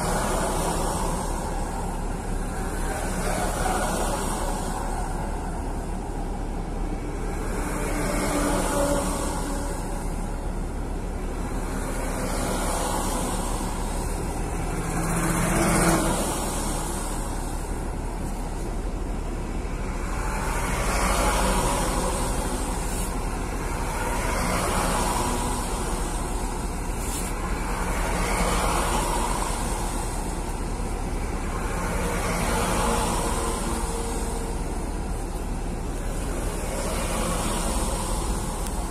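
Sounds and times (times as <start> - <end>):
truck engines rumbling: 0.0 - 38.9
tyre hiss on wet asphalt: 20.9 - 30.7.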